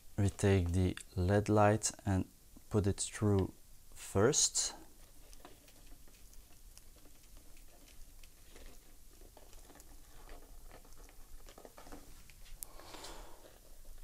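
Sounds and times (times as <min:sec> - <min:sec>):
wire light string rustling in tube: 0:04.2 - 0:14.0.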